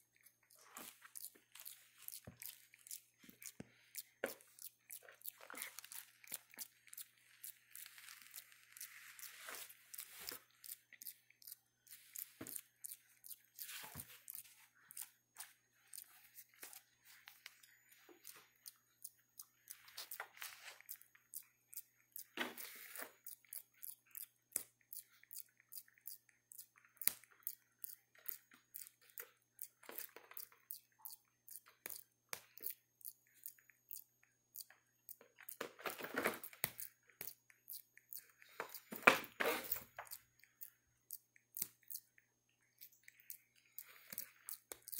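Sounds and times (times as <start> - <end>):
monkeys tearing cardboard: 0.6 - 10.8.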